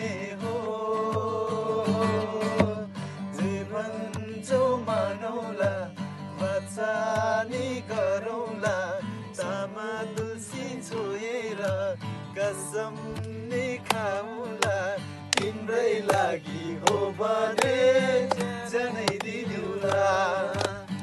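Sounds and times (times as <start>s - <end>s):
acoustic guitar strumming: 0.0s - 21.0s
men singing: 0.0s - 21.0s.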